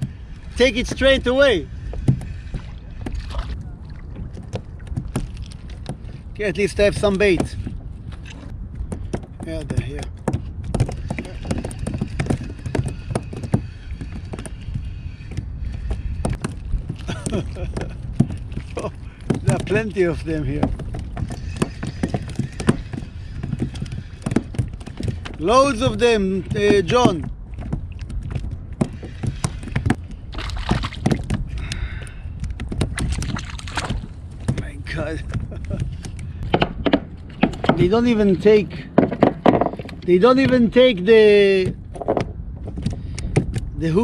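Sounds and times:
steady low rumble: 0.0 - 44.0
water sloshing against hull: 0.0 - 44.0.

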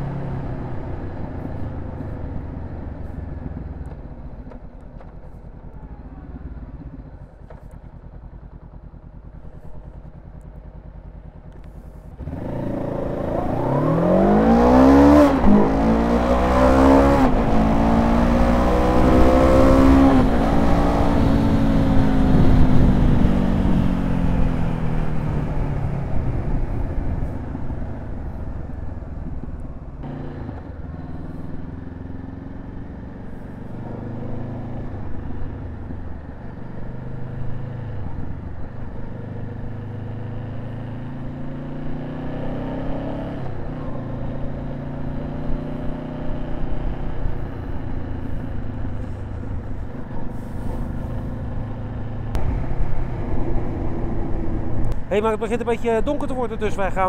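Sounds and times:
motorcycle engine shifting gears: 0.0 - 56.8
wind rush: 52.3 - 55.3.

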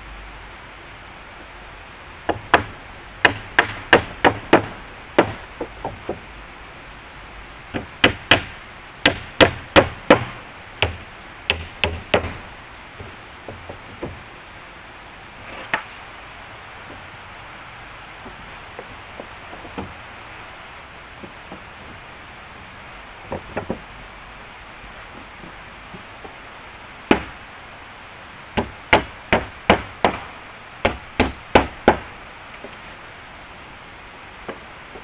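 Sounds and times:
hand tool chopping wood: 2.3 - 6.2, 7.8 - 12.4.

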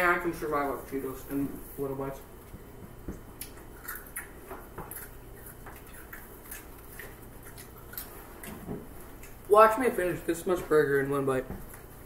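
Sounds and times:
faint low hum: 0.0 - 12.0
eating clicks and rustles: 0.5 - 12.0
chewing: 3.1 - 12.0.

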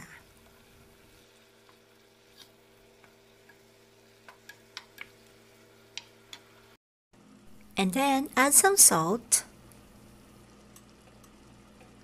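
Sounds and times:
pork sizzling in a pan: 0.0 - 6.8.

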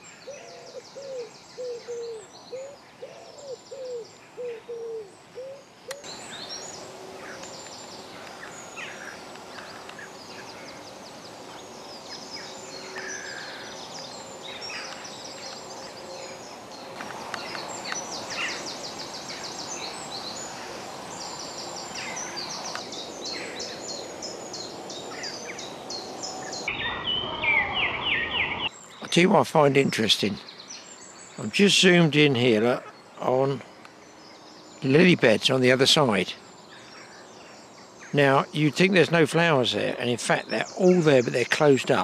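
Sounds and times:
songbirds chirping and trilling: 0.0 - 42.0.

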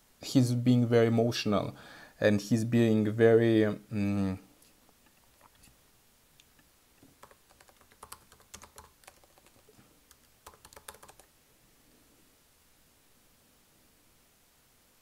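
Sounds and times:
keyboard typing: 5.1 - 5.7, 7.0 - 11.3.

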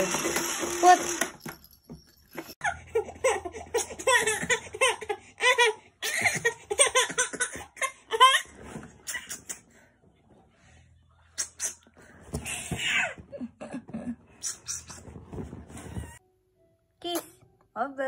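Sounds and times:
baby laughing: 2.6 - 9.6.

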